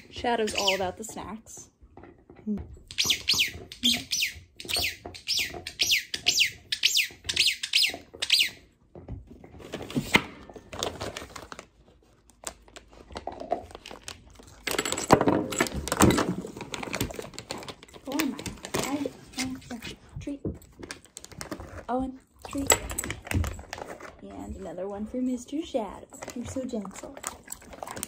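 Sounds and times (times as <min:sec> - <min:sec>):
squeaky dog toy squeaking: 0:00.0 - 0:01.0, 0:02.9 - 0:08.6
plastic bag rustling: 0:10.6 - 0:14.6.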